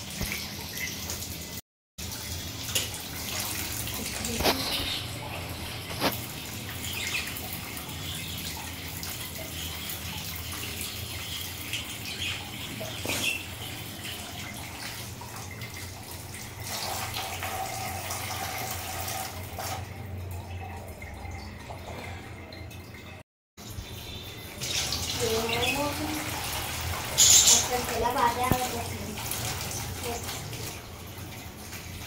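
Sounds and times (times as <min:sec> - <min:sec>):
water running and splashing: 0:00.0 - 0:23.0, 0:23.6 - 0:32.0.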